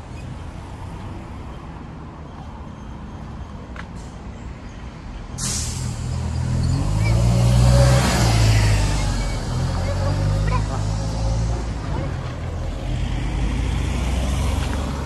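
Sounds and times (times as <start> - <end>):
low rumble of traffic: 0.0 - 15.0
vehicle engine approaching: 5.9 - 15.0.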